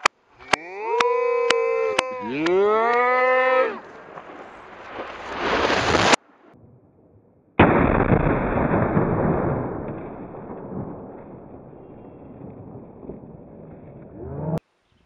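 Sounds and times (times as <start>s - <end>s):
explosive target blast: 4.4s - 14.3s.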